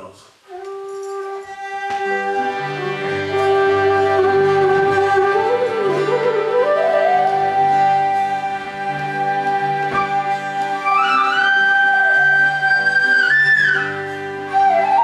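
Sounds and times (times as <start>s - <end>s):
bamboo flute: 0.4s - 15.0s
harmonium chords: 2.0s - 11.4s.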